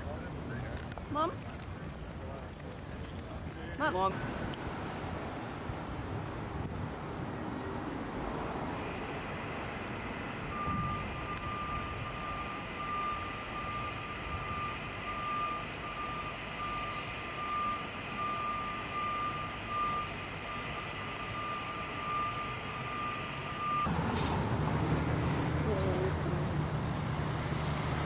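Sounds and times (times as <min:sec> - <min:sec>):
city street traffic: 0:00.0 - 0:28.0
backup alarm beeping: 0:08.7 - 0:24.0.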